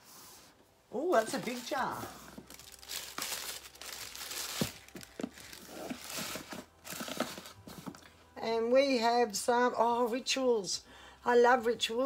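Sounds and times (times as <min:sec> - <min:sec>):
tissue paper crinkling: 0:01.0 - 0:07.9.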